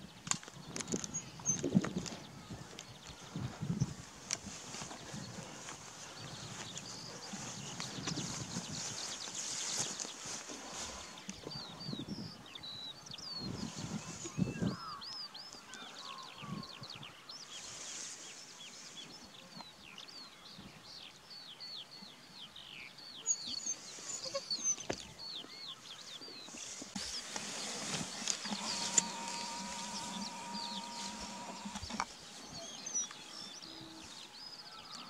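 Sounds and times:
steady low hum: 27.2 - 32.1.

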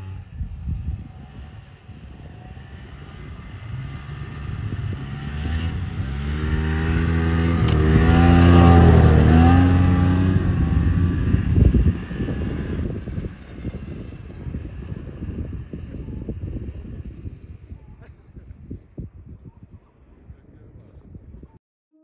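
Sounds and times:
vehicle engine passing by: 0.0 - 17.5.

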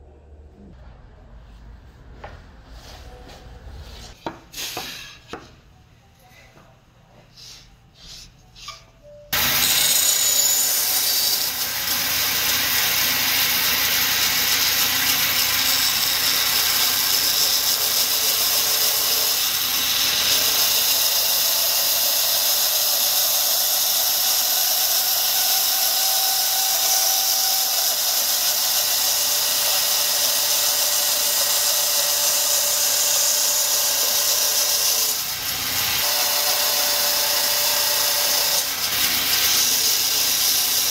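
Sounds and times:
band saw cutting wood: 9.4 - 40.9.

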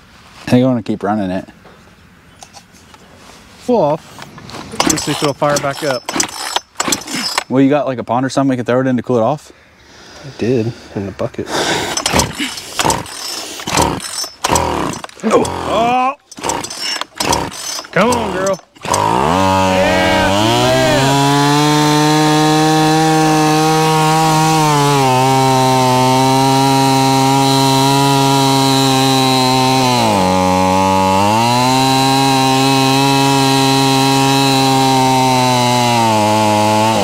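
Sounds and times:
chainsaw running at fast idle: 12.0 - 37.0.

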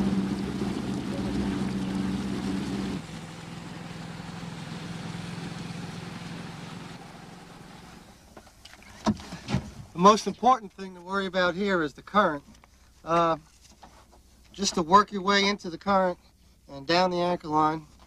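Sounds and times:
motorboat engine humming: 0.0 - 9.2.

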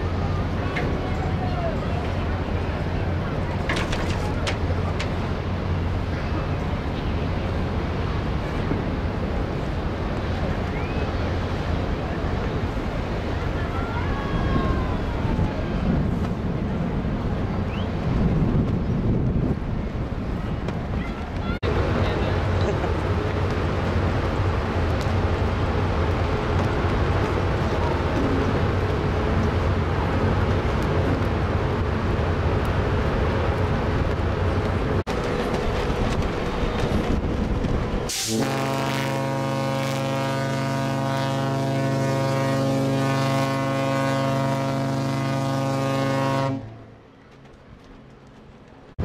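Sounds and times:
wind buffeting microphone: 0.0 - 40.3
ship engine rumble: 0.0 - 49.0
ship horn long blast: 38.1 - 47.0.

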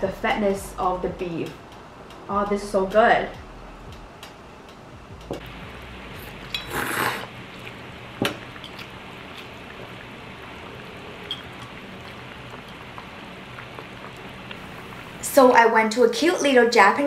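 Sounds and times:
broth bubbling in hot pot: 5.4 - 15.6.

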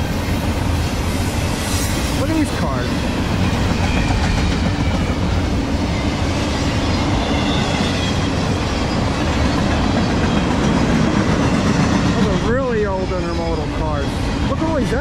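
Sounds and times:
train wheels rumbling on rails: 0.0 - 15.0
high-pitched wheel squeal: 5.9 - 10.4.

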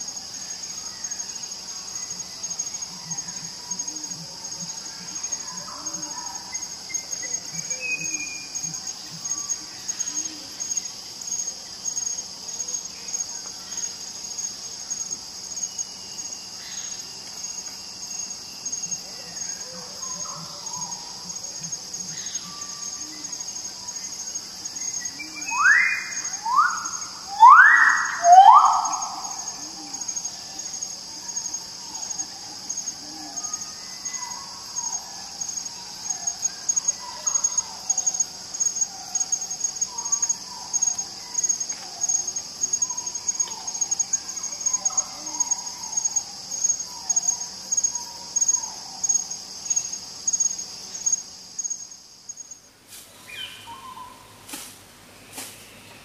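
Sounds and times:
high trill of insects: 0.0 - 56.0
bird calling sharp descending notes: 25.4 - 29.6.

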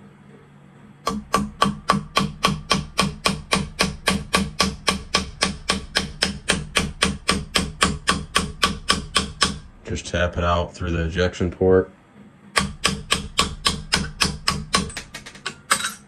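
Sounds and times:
hammer tapping on pin punch: 1.0 - 9.7, 12.5 - 16.0.

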